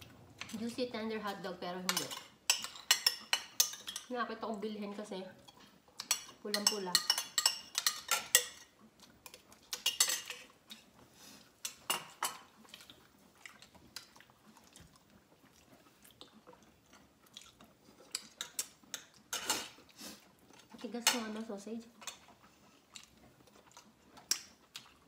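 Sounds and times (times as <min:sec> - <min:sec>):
spoon clinking on ceramic dishes: 0:01.9 - 0:04.1, 0:06.0 - 0:08.7, 0:09.7 - 0:10.5
chewing: 0:05.4 - 0:06.4, 0:07.0 - 0:25.0.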